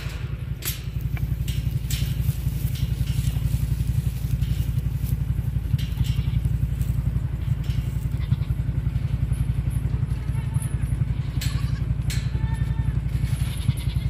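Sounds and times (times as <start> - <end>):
engine running steadily: 0.0 - 14.0
footsteps crunching on straw: 0.8 - 8.7.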